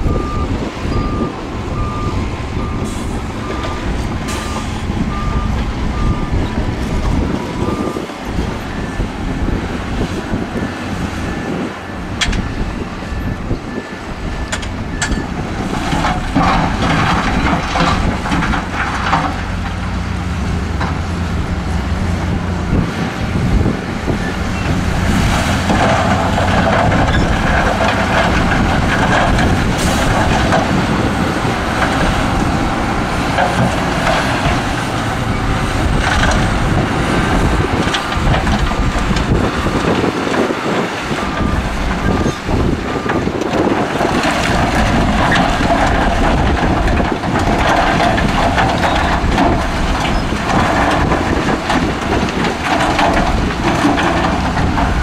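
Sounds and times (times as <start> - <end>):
diesel trucks running: 0.0 - 55.0
rock and dirt spilling: 23.4 - 55.0.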